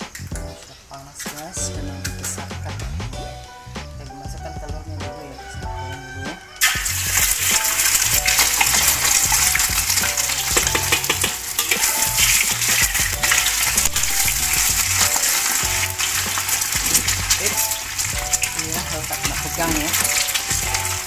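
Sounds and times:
eggs sizzling in hot oil: 5.9s - 21.0s
metal spatula scraping wok: 6.6s - 21.0s.

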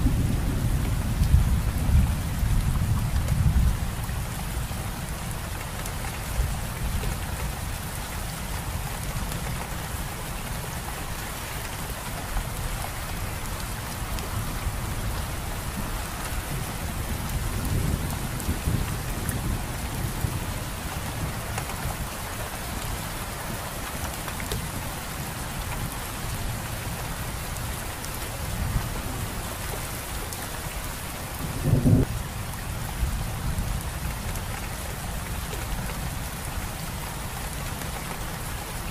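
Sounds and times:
rain falling on leaves: 0.0s - 38.9s.

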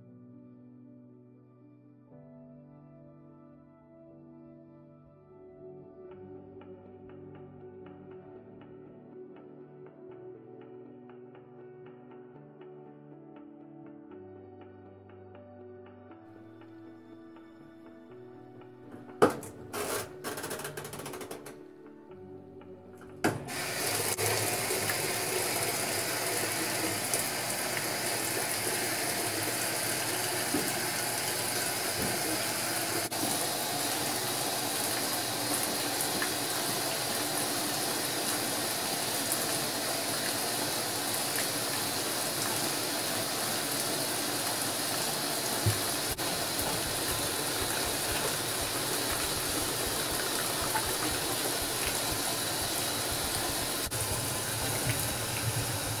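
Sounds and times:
water pouring into a tub: 23.5s - 56.0s.

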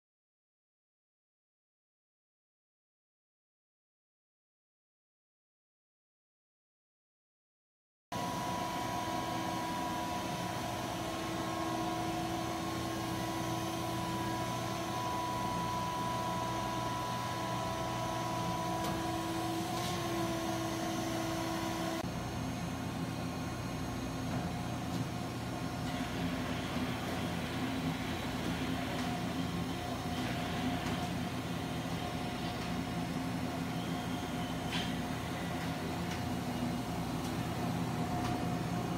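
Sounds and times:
machinery hum: 8.2s - 38.9s
steady whining tones: 8.2s - 38.9s.

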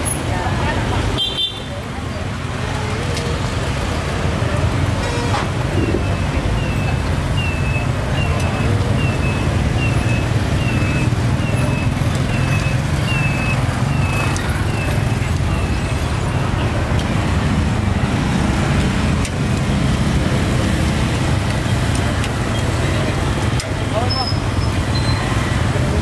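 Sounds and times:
traffic passing: 0.0s - 26.0s.

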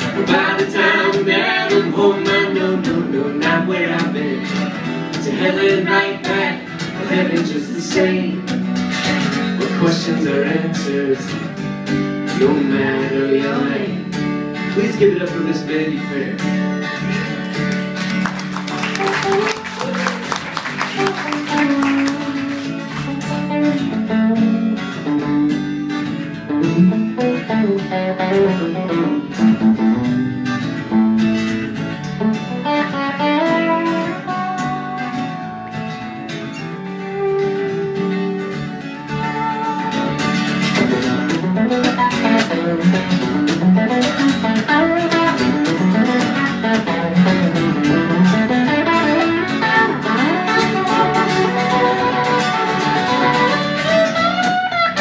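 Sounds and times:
strummed acoustic guitar: 0.0s - 55.0s
electric guitar solo: 16.0s - 55.0s.

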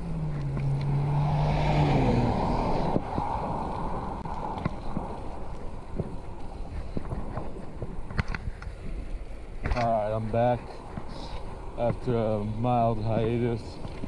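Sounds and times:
passing vehicle engine and tyres: 0.0s - 6.3s
road rumble: 0.0s - 14.0s
wind on microphone: 0.0s - 14.0s.

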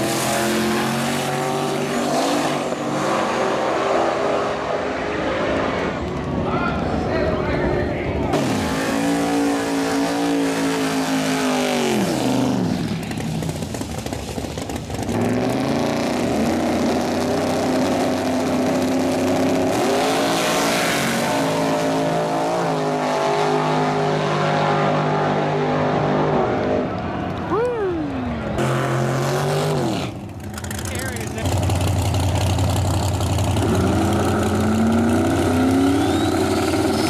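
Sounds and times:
car engines idling and revving: 0.0s - 37.0s
race car engine revving: 8.2s - 27.2s, 28.2s - 37.0s.

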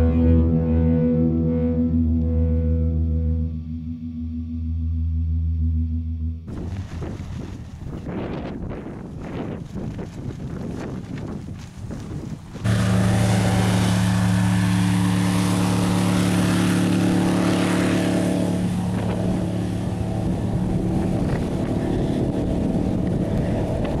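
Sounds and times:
airboat engine droning: 0.0s - 9.6s, 11.8s - 24.0s
wind buffeting microphone: 6.5s - 24.0s.

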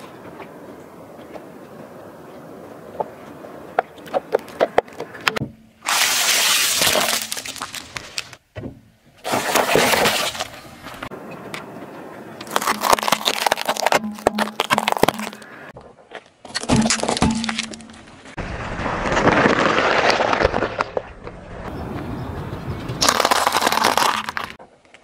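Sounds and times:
tyre crushing plastic objects: 5.8s - 8.4s, 9.2s - 11.1s, 12.4s - 15.5s, 23.0s - 24.6s.

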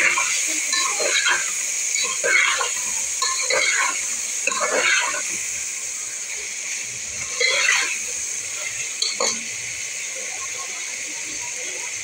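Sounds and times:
frying hiss: 0.0s - 12.0s
metal spoon scraping a pot: 0.8s - 5.3s, 7.3s - 8.0s.

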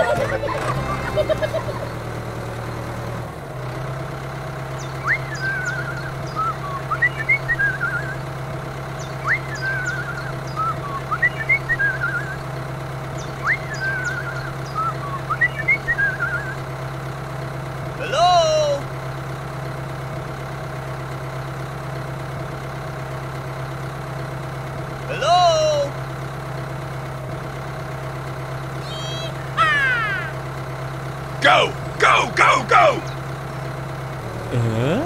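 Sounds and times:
tractor engine running: 0.0s - 35.0s
bird chirping: 4.8s - 8.2s, 8.9s - 12.4s, 13.1s - 16.6s.

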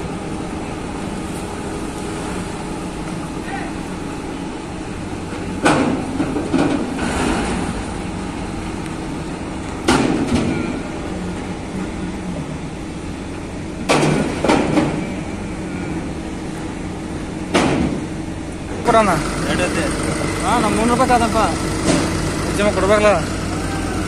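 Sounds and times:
machinery hum: 0.0s - 24.0s
loud metallic bangs: 21.6s - 22.6s.

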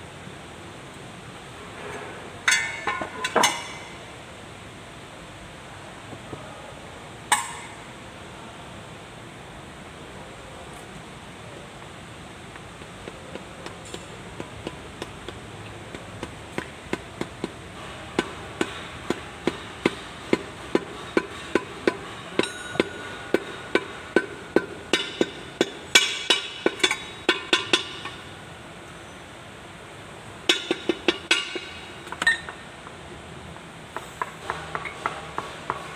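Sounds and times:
hammer tapping on metal: 12.5s - 17.6s, 18.2s - 28.2s, 30.5s - 32.6s, 33.9s - 35.9s.

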